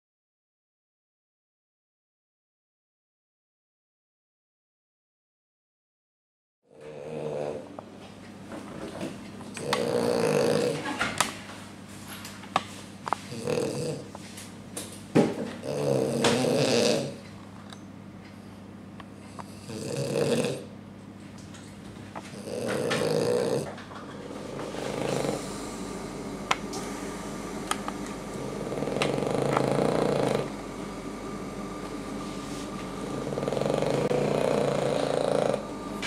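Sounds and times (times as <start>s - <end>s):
dog snoring: 6.7s - 7.8s, 9.5s - 11.0s, 13.2s - 14.2s, 15.6s - 17.2s, 19.3s - 20.7s, 22.2s - 27.0s, 27.6s - 31.8s, 32.4s - 36.0s.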